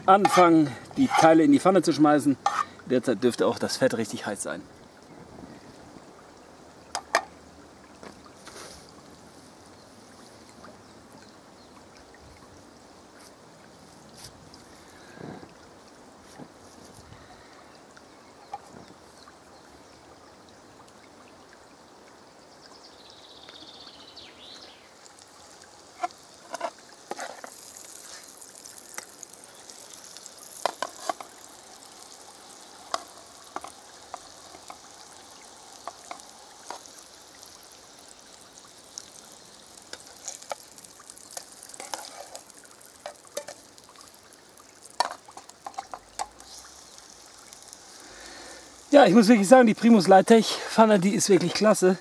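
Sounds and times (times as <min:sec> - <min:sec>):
patties sizzling in frying pan: 0:24.6 - 0:50.2
sharp crackles and clicks: 0:24.9 - 0:50.3.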